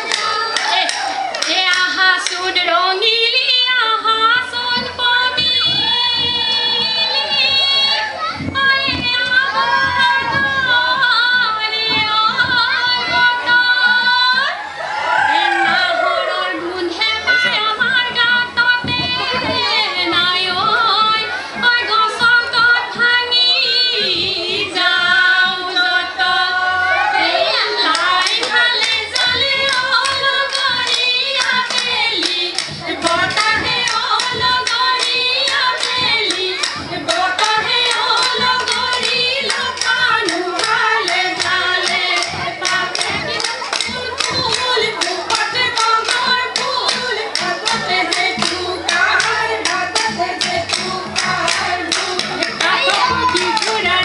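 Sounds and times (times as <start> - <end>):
fast even clapping: 0.0 - 2.6, 27.5 - 54.0
women singing trilling voices: 0.0 - 54.0.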